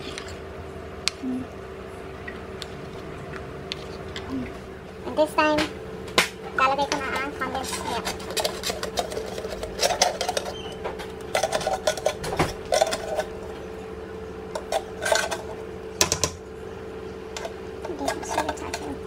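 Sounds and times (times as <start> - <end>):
steady hum: 0.0 - 19.0
wooden spoon scraping metal pot: 7.0 - 13.4, 14.6 - 15.6, 17.4 - 19.0.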